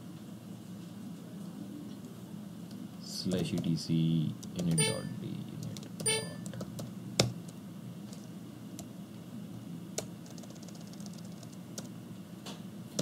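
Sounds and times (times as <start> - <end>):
steady low hum: 0.0 - 13.0
keyboard keys clicking: 4.4 - 7.3, 10.0 - 11.9.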